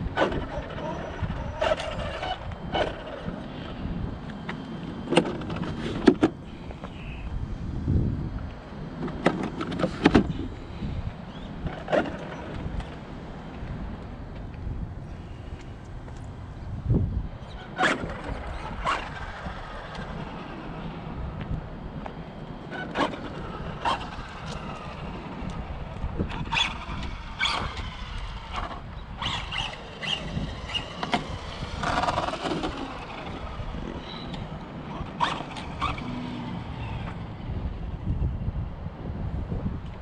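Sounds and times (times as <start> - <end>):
electric rc car motor whining: 0.0 - 7.0, 17.4 - 38.3.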